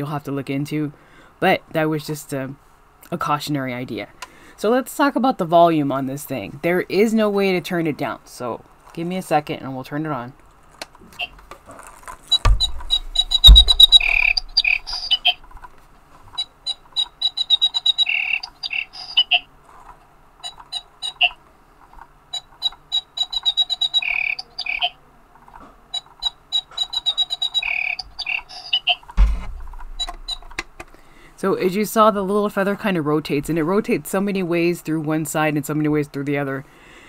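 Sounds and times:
electronic bird chirps: 12.3s - 15.4s, 16.4s - 19.5s, 20.4s - 21.4s, 22.3s - 25.0s, 26.0s - 29.0s, 29.8s - 30.6s
heavy thumps of toy handled: 29.2s - 30.9s.

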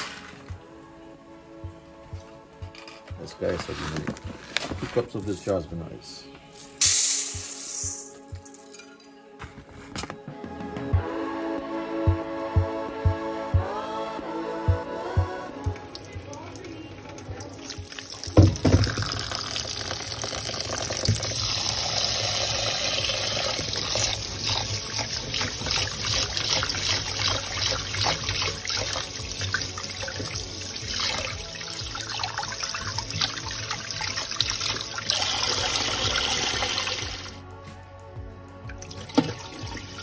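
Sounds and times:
tap running into metal bowl: 17.2s - 21.6s, 38.8s - 39.8s
bowl knock: 18.3s - 19.3s.

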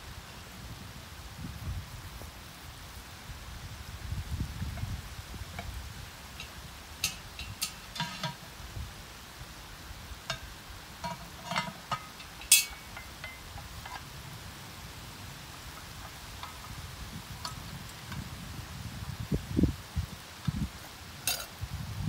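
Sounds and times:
iron lid lifter clinking on pot: 6.4s - 8.5s, 10.3s - 14.1s, 21.3s - 21.5s.

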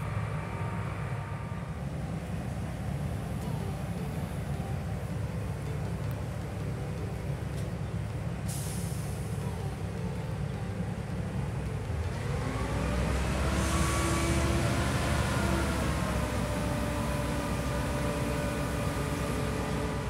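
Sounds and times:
drilling rig engine rumble: 0.0s - 20.0s
hiss of air: 8.5s - 9.4s.

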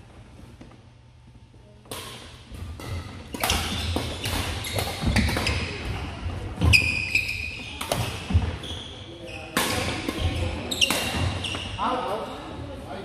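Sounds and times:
racket striking shuttlecock: 1.9s - 5.6s
sneaker squeak: 3.3s - 6.0s, 6.6s - 12.6s.

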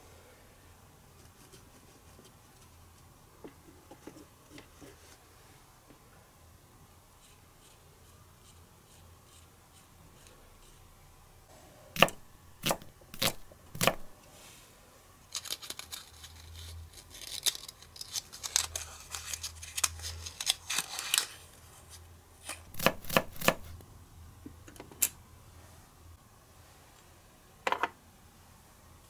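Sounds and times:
paper crinkling: 15.3s - 21.6s.

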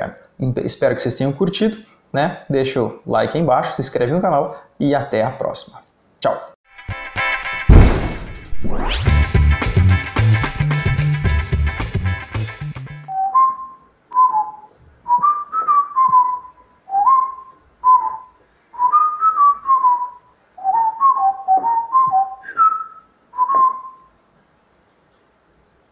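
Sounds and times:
person whistling a tune: 12.6s - 24.1s.

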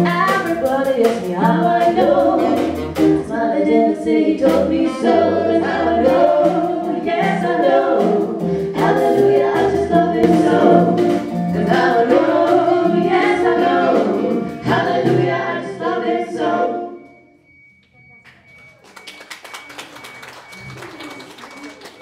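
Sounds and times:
swing band playing: 0.0s - 16.7s
women singing in harmony: 0.0s - 17.1s.

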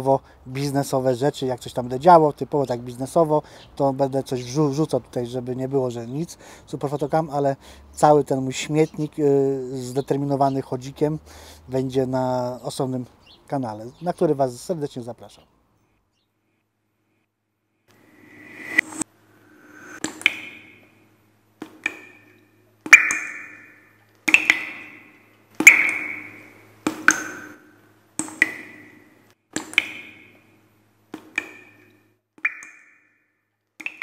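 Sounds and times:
short rising swell: 18.0s - 20.1s
sharp click: 18.6s - 19.0s, 28.2s - 28.9s, 29.6s - 30.3s.

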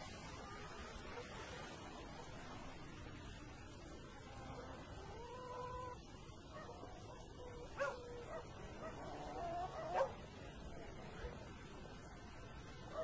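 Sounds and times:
dog yelp: 7.8s - 9.0s, 9.8s - 10.2s.

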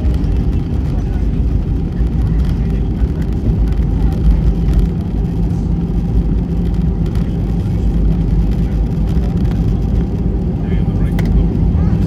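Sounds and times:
aircraft engine noise: 0.0s - 12.0s
wheels running on runway: 0.0s - 12.0s.

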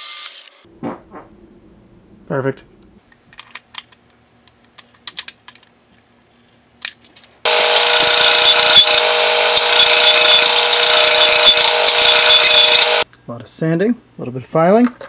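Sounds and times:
power sander grinding steel: 7.5s - 13.0s.

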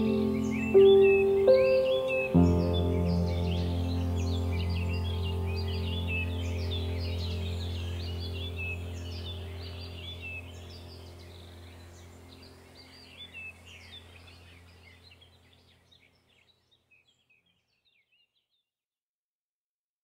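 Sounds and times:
low steady drone: 0.0s - 15.4s
small birds chirping: 0.0s - 18.7s.

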